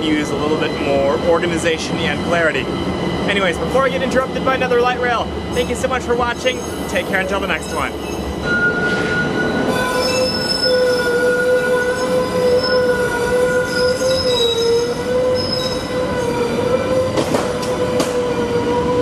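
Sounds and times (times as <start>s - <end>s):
rail car wheels squealing: 5.6s - 19.0s.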